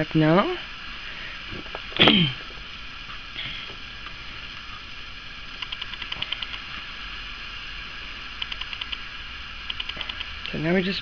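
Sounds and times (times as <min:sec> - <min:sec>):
rapid ratchet-like clicking: 0:05.6 - 0:06.7, 0:08.4 - 0:10.5.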